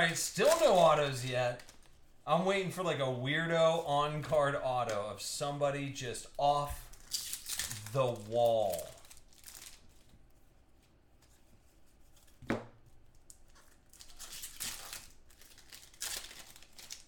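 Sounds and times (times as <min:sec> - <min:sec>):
foil wrappers crinkling and tearing: 0:00.0 - 0:02.1, 0:06.2 - 0:10.2, 0:13.2 - 0:17.0.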